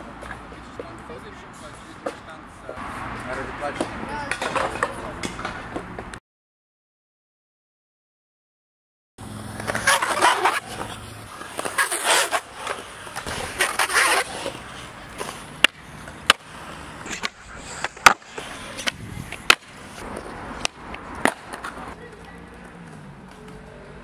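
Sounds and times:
skateboard wheels rolling: 0.0s - 6.1s, 9.2s - 24.0s
skateboard clacks: 3.7s - 6.2s, 9.5s - 23.7s.

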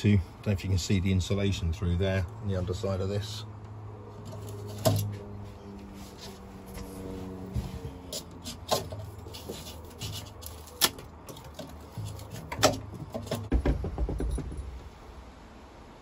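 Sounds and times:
handling knocks and clicks: 8.2s - 14.8s.

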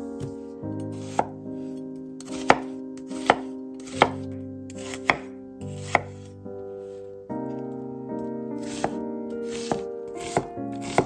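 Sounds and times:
background music: 0.0s - 11.0s
knife chopping on wooden board: 0.9s - 1.3s, 2.3s - 6.2s, 8.6s - 11.0s.

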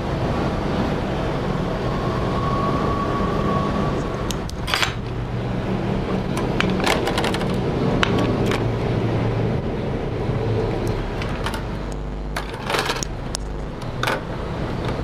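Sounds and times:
steady low hum: 0.0s - 15.0s
handling noise: 4.5s - 5.2s, 6.3s - 8.7s, 10.9s - 15.0s.

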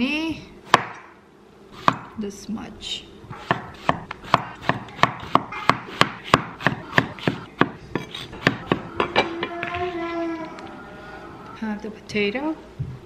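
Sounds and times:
knife chopping on wooden board: 0.7s - 1.0s, 1.8s - 2.1s, 3.3s - 8.9s.

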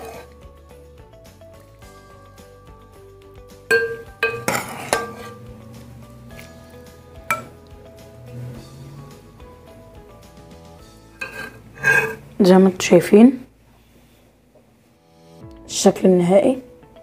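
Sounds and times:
background music: 0.0s - 13.6s, 14.7s - 17.0s
metal ladle clinking on bowl: 3.7s - 5.4s, 7.3s - 7.6s, 11.2s - 12.2s.

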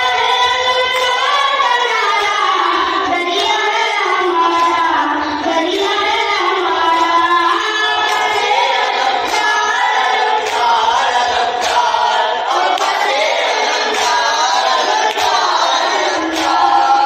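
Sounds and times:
boy chanting into a microphone: 0.0s - 17.0s
men's voices chanting: 8.0s - 17.0s.

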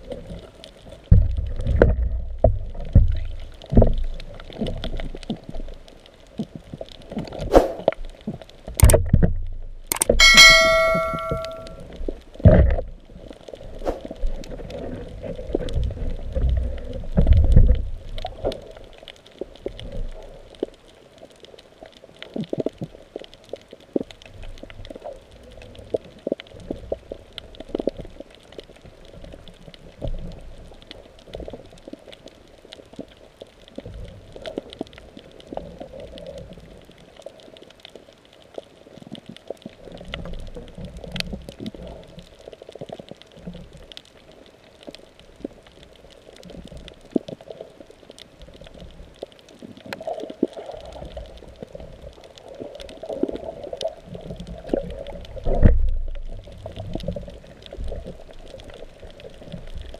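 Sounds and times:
water sloshing underwater: 0.0s - 59.9s
sharp clicks: 8.8s - 9.2s, 9.9s - 11.8s.

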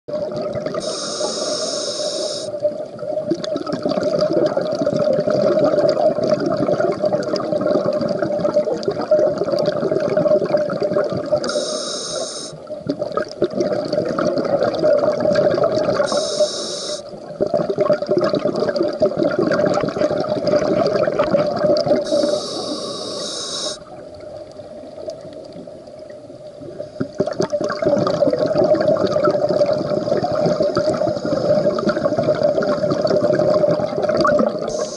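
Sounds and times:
regulator inhalation hiss: 0.8s - 2.6s, 11.4s - 12.6s, 16.0s - 17.2s, 22.0s - 23.9s, 34.6s - 34.9s
bubbling exhalations underwater: 3.0s - 11.5s, 12.8s - 16.2s, 17.2s - 22.8s, 27.0s - 34.9s.

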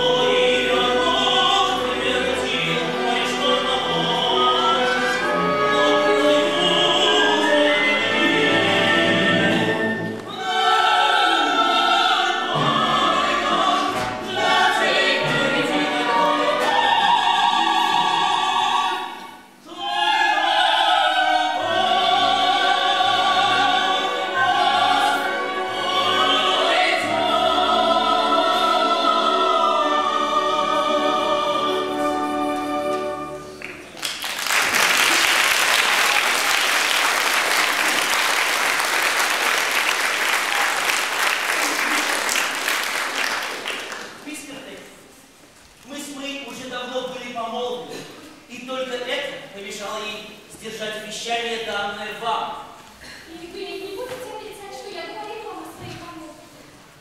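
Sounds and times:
ensemble of voices singing: 0.0s - 33.7s
orchestral accompaniment: 0.0s - 34.0s
audience applause: 33.6s - 44.2s.

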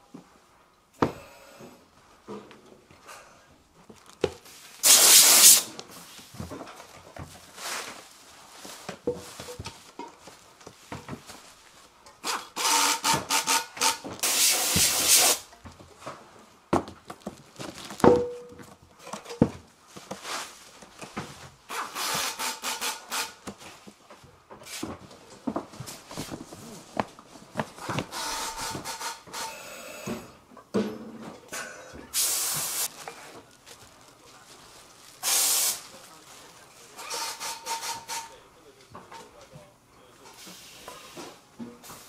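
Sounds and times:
bubble wrap rustling and crinkling: 3.8s - 12.0s, 17.0s - 18.9s, 19.7s - 21.6s, 23.6s - 28.9s, 32.6s - 37.0s
cardboard boxes handled and slid: 5.8s - 12.0s, 15.7s - 21.6s, 23.5s - 28.9s.

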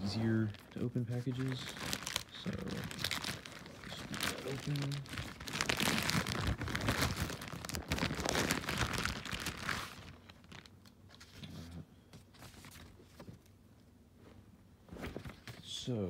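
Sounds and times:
package tearing and crinkling: 0.4s - 10.8s.

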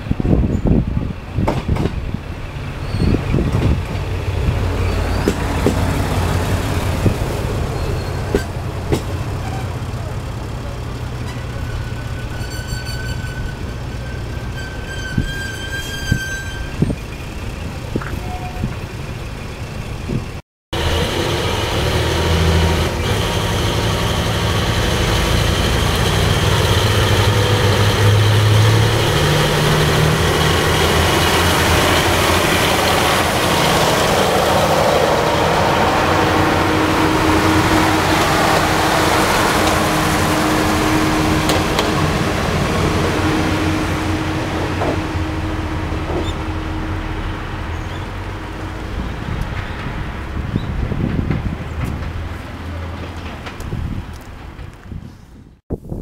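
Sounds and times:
diesel railcar engine humming: 0.0s - 55.2s
high squeal: 2.8s - 3.4s, 4.8s - 5.4s, 7.7s - 8.5s, 11.2s - 17.4s
diesel engines low throbbing: 18.8s - 52.3s.

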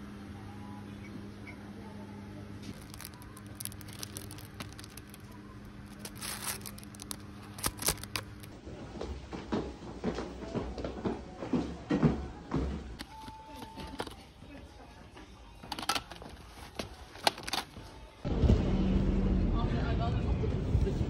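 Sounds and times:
steady background hum: 0.0s - 21.0s
plastic packaging crinkling: 2.7s - 8.6s.

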